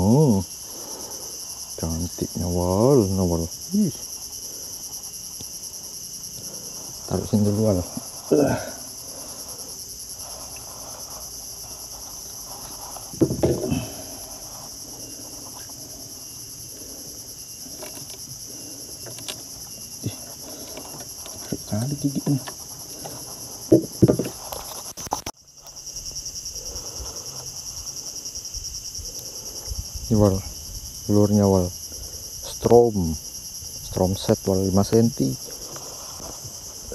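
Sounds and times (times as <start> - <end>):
high-pitched insect chorus: 0.0 - 36.9
low grunts and knocks: 13.1 - 14.3, 20.0 - 24.4.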